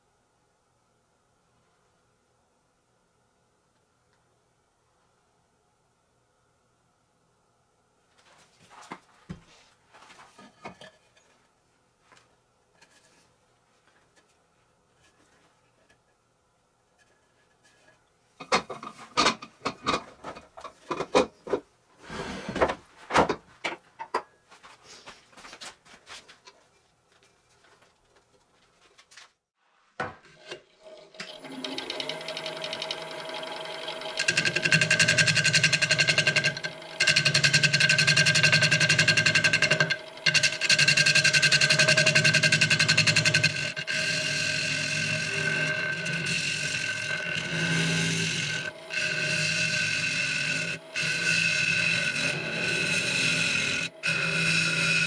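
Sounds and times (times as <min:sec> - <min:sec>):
power tool running: 0:30.8 - 0:55.0.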